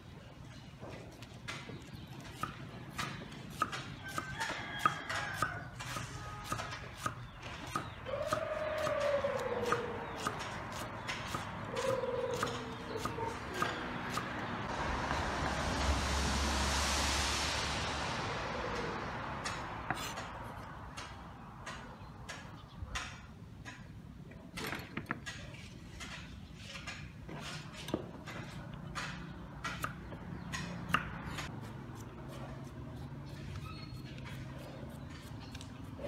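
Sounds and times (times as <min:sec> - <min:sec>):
loud rushing noise: 0:13.8 - 0:21.1.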